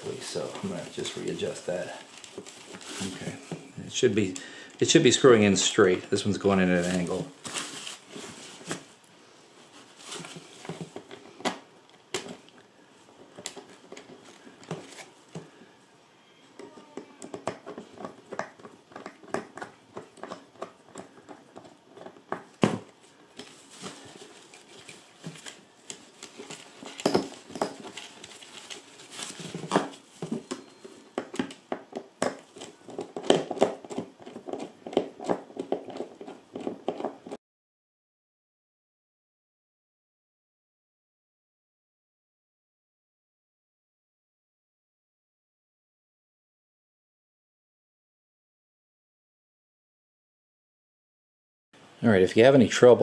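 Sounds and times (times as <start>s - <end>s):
fabric liner rustling: 0.0s - 3.8s, 6.4s - 11.0s, 23.4s - 30.7s.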